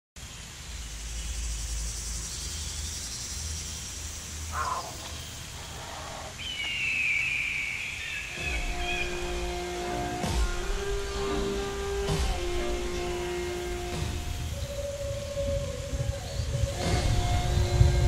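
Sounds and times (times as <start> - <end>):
insects hissing: 0.2 - 18.0
animal call: 4.4 - 18.0
falling whistled bird call: 4.5 - 12.0, 12.7 - 18.0.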